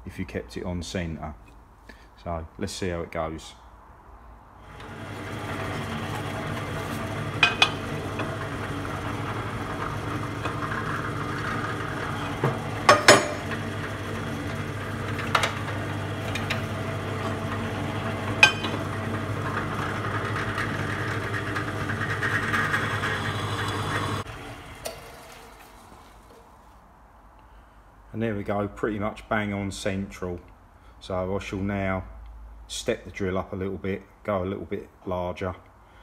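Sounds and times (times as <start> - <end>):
pillar drill drilling metal: 4.7 - 25.5.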